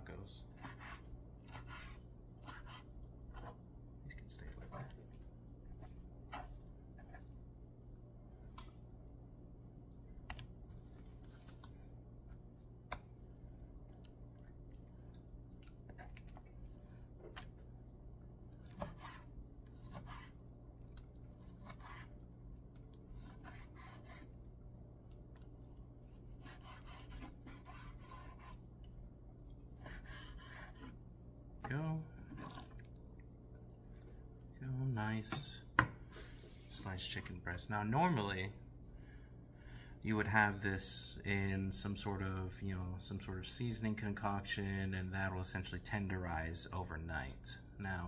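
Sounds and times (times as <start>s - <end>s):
low steady hum: 0.0s - 48.0s
knife scraping through meat: 0.6s - 2.9s, 18.7s - 20.4s, 21.3s - 22.2s, 23.1s - 24.3s, 26.1s - 28.6s, 29.8s - 31.0s.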